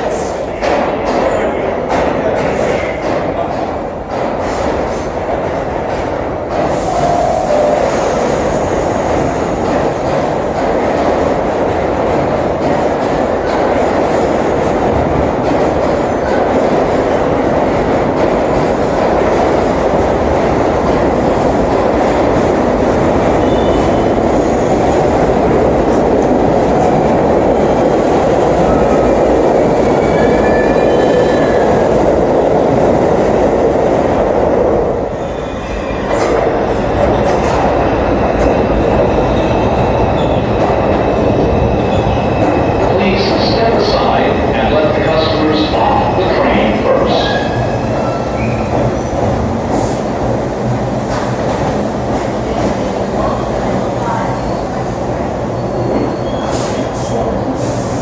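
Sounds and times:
subway train wheels rumbling: 0.0 - 58.0.

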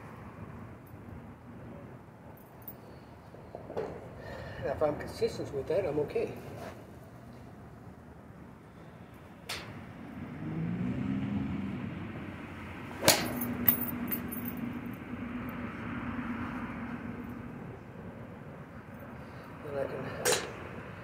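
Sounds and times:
golf club hitting ball: 12.9 - 14.1.

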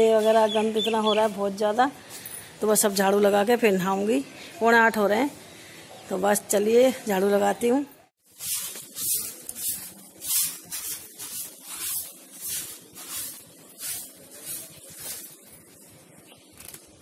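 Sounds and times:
broom sweeping concrete floor: 8.2 - 15.9.

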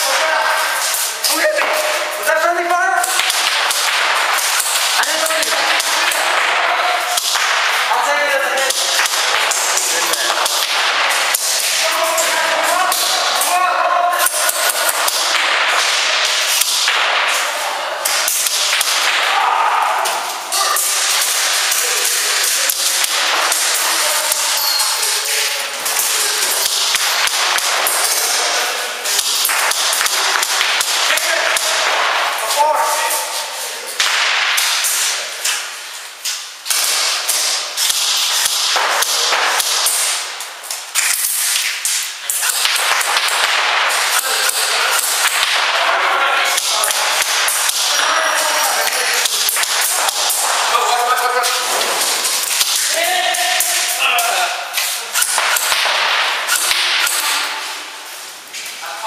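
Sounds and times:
airsoft gunfire: 3.0 - 7.9.

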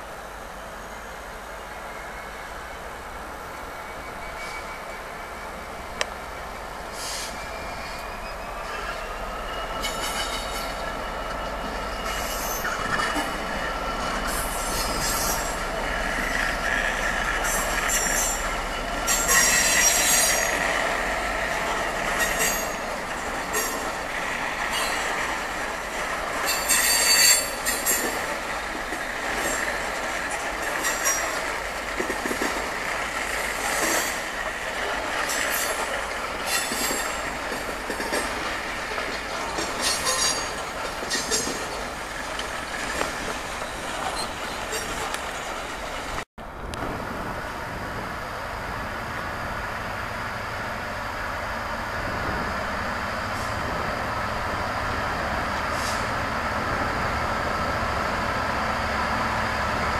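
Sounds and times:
train wheels squealing on rails: 0.0 - 46.2, 47.0 - 59.9.

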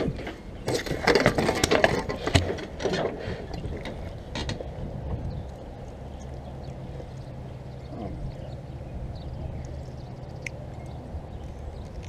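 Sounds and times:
clicks taps and rustles: 0.0 - 4.7.

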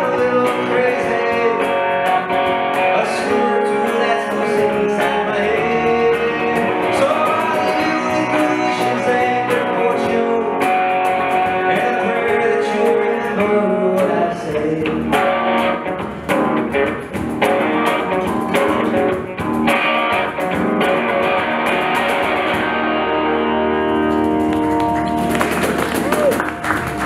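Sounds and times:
live band playing: 0.0 - 27.0
strummed electric guitar: 0.0 - 27.0
cajon hits: 24.4 - 27.0.

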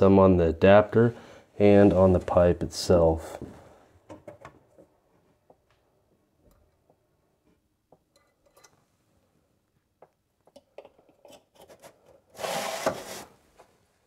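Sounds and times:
loud rustling scrape: 11.7 - 13.4.

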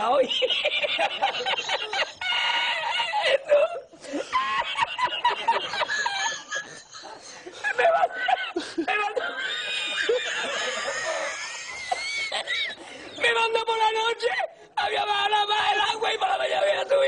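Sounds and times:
man laughing: 0.4 - 12.8.

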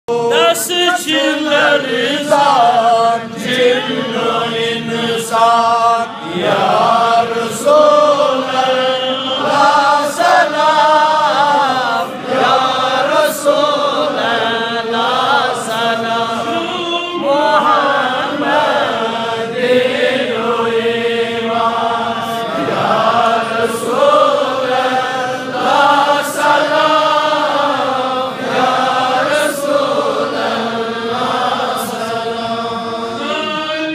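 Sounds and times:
man chanting through loudspeakers: 0.1 - 9.9, 13.3 - 19.1, 31.7 - 33.9.

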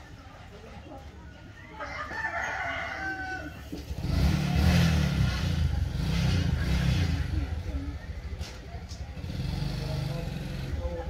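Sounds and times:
rooster crowing: 1.7 - 3.7.

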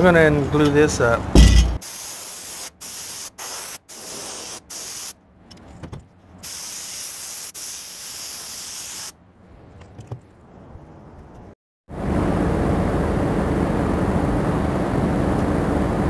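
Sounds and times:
spray gun hissing: 1.8 - 5.2, 6.4 - 9.2.

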